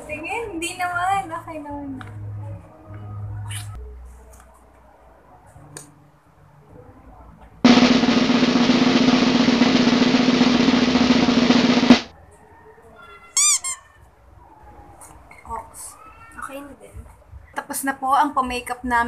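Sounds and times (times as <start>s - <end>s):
snare drum roll: 7.7s - 12.1s.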